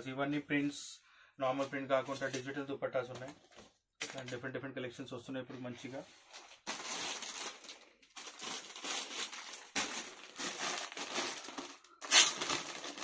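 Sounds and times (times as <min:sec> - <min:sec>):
plastic bags crinkling: 0:06.2 - 0:13.0.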